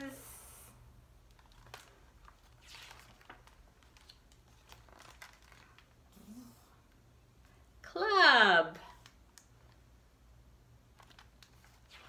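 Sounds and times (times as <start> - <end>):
low room hum: 0.0 - 12.0
paper page turning: 1.3 - 6.0, 10.9 - 12.0.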